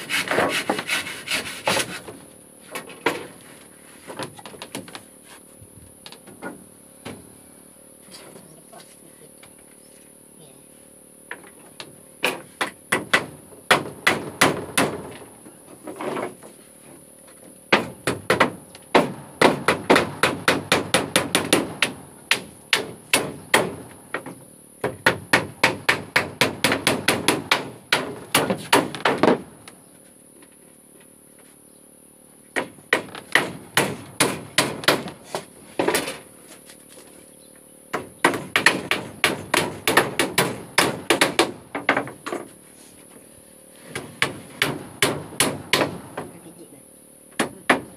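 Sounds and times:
hammers striking nails into wood: 0:12.2 - 0:15.2, 0:17.7 - 0:29.5, 0:32.5 - 0:36.2, 0:37.9 - 0:42.4, 0:43.9 - 0:46.4, 0:47.3 - 0:47.9.

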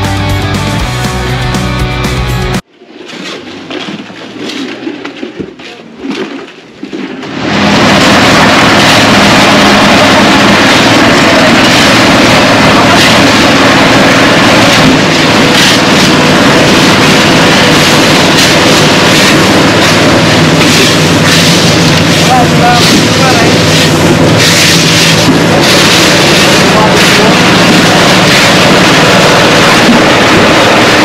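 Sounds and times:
construction machinery engine: 0:07.2 - 0:31.0.

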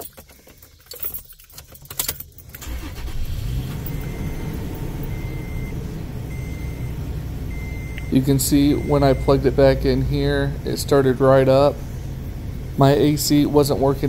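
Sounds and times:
keys jangling in ignition: 0:00.0 - 0:05.7
truck engine running: 0:02.5 - 0:14.0.

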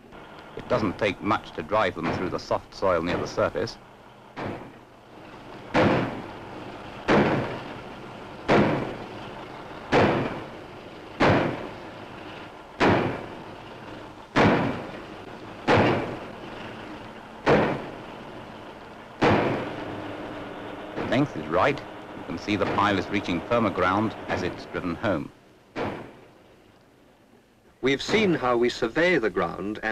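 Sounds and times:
pile driver hammer blows: 0:00.6 - 0:03.8, 0:05.7 - 0:06.4, 0:07.0 - 0:07.8, 0:08.4 - 0:09.3, 0:09.9 - 0:10.5, 0:11.2 - 0:11.8, 0:12.8 - 0:13.4, 0:14.3 - 0:16.7, 0:17.4 - 0:18.2, 0:19.2 - 0:25.1, 0:25.7 - 0:26.4.

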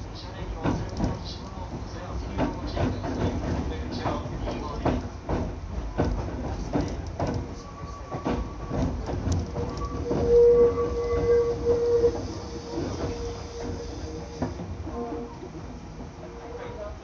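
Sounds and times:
train wheels clicking over rail joints: 0:00.5 - 0:14.9
steady squealing tone: 0:07.4 - 0:15.6.

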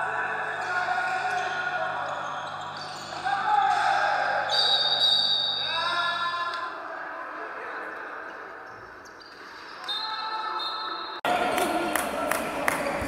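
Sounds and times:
players shouting: 0:00.0 - 0:06.8.

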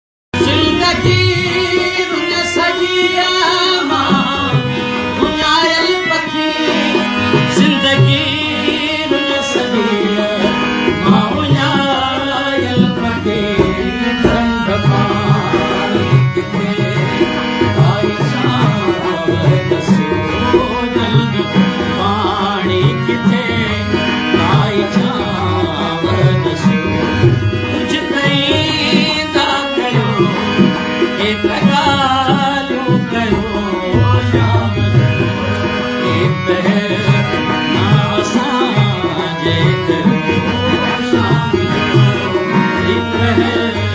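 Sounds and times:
wavering ornamented melody: 0:34.4 - 0:36.3.

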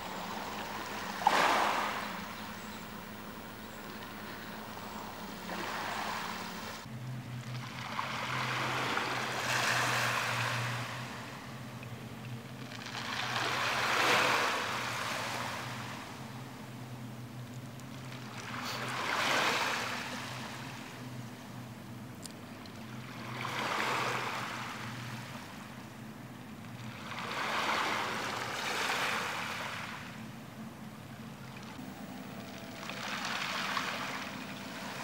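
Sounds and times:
small waves on pebble beach: 0:00.0 - 0:06.9, 0:07.5 - 0:11.2, 0:12.7 - 0:16.0, 0:18.2 - 0:20.8, 0:23.0 - 0:25.5, 0:26.9 - 0:30.0, 0:32.6 - 0:35.0
faint low hum: 0:00.0 - 0:07.6.

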